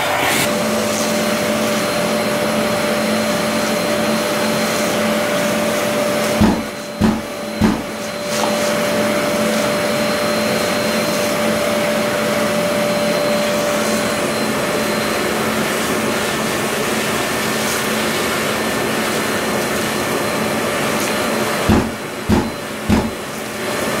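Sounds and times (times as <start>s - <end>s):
dust extractor whining: 0.0s - 24.0s
sharp filter cleaning thumps: 6.4s - 8.1s, 21.7s - 23.3s.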